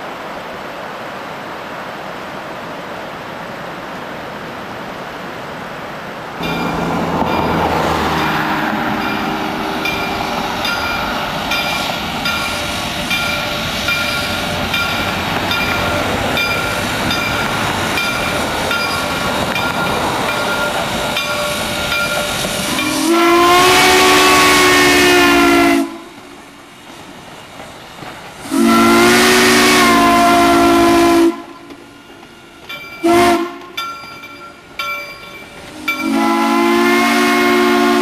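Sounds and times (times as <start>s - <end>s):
steam engine rumble and hiss: 0.0s - 38.0s
steam locomotive bell ringing: 6.4s - 25.9s, 28.5s - 38.0s
steam whistle blast: 21.5s - 26.1s, 28.4s - 31.6s, 33.0s - 33.7s, 35.7s - 38.0s.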